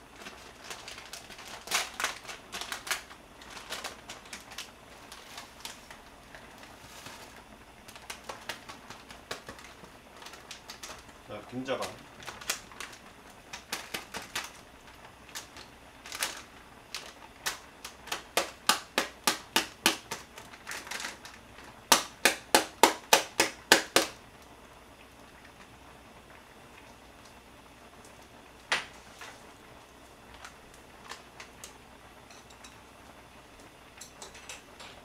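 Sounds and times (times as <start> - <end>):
tapping foil pouch: 0.2 - 24.2.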